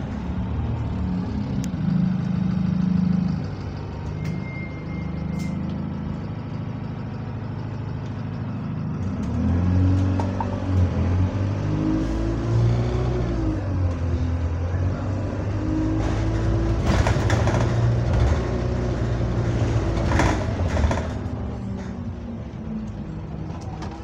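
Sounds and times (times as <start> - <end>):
bus engine droning: 0.0 - 24.0
clatter: 15.9 - 22.1.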